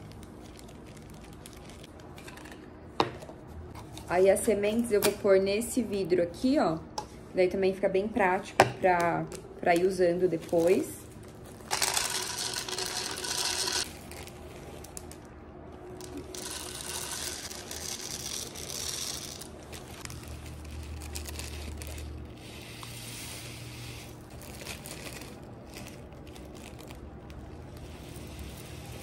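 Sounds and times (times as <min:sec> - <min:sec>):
seeds poured into glass jar: 0:11.7 - 0:15.1, 0:16.0 - 0:29.0.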